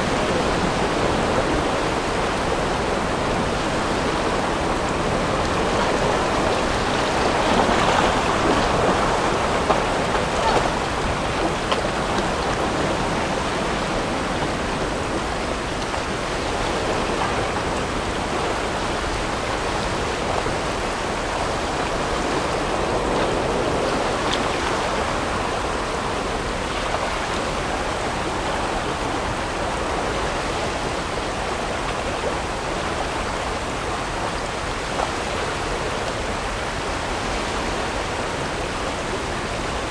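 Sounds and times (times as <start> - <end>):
whitewater rapids rushing: 0.0 - 39.9.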